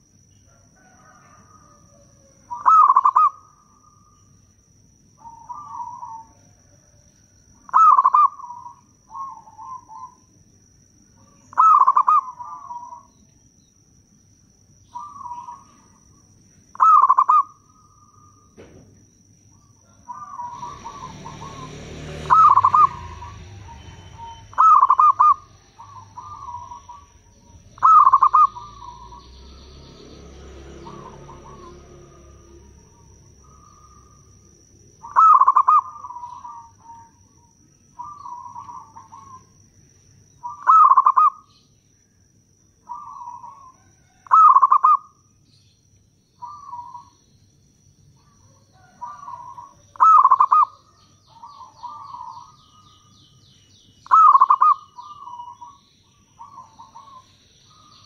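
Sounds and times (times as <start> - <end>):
dove cooing: 0.0 - 4.2, 5.2 - 10.3, 11.2 - 13.1, 14.9 - 18.8, 19.6 - 39.6, 40.4 - 41.6, 42.9 - 45.2, 46.4 - 47.2, 48.2 - 53.1, 54.0 - 58.0
rushing background noise: 20.1 - 37.3.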